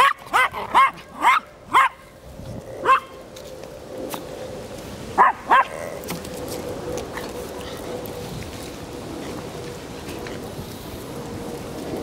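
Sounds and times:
small dog yapping: 0.0 - 2.0, 2.8 - 3.2, 5.2 - 5.8.

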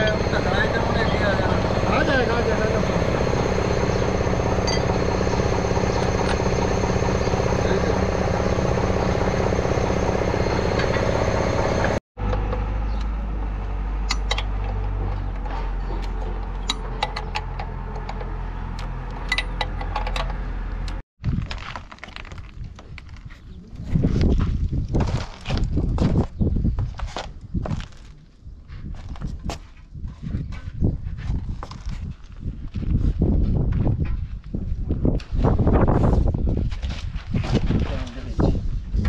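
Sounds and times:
engine running close by: 0.0 - 21.0.

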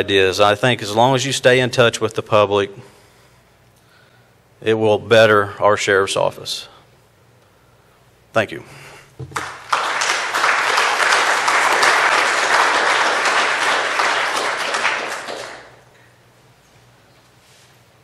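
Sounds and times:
audience applauding: 9.3 - 15.9.

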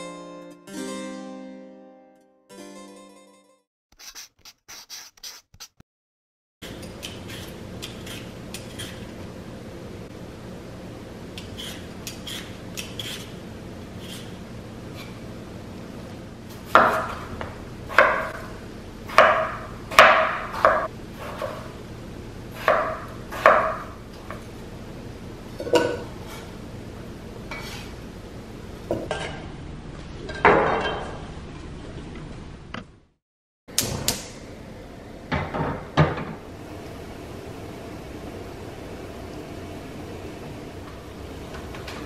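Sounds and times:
knife scraping across board: 4.0 - 5.8, 7.0 - 9.1, 11.4 - 13.4, 14.0 - 15.2, 27.5 - 28.0
knife chopping on cutting board: 16.6 - 18.4, 19.1 - 21.6, 22.6 - 23.9.

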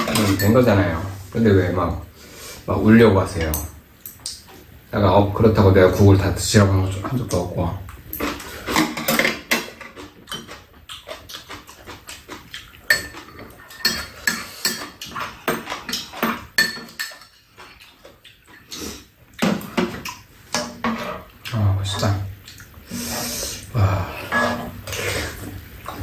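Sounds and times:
utensils clinking against bowls: 0.0 - 0.9, 8.1 - 10.7, 12.5 - 18.7, 24.2 - 26.0.

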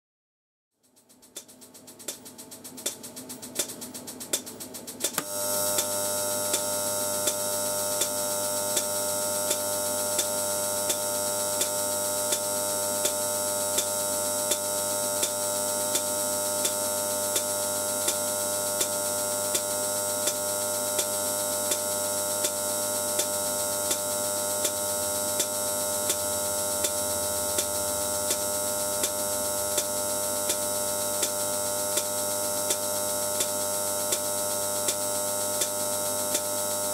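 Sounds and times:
electrical buzz and hiss: 1.3 - 36.9.

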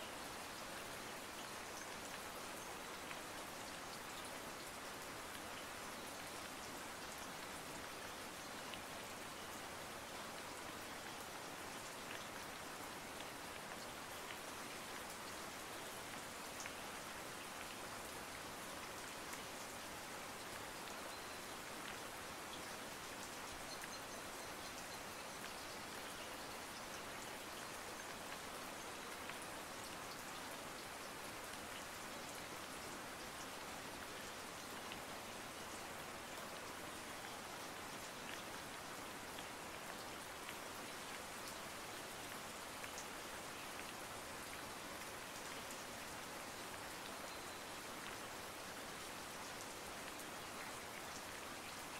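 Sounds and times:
steady rain: 0.0 - 51.9
faint raindrop ticks: 1.0 - 48.3.

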